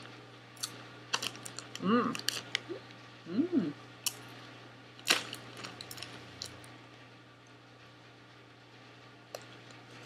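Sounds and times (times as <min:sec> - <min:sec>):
foil snack bag crinkling: 0:00.6 - 0:02.7, 0:05.0 - 0:06.7.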